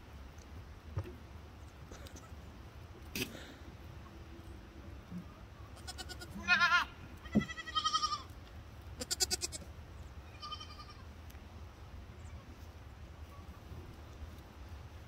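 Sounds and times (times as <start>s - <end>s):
goats bleating: 5.8s - 8.3s, 9.0s - 9.7s, 10.3s - 11.0s.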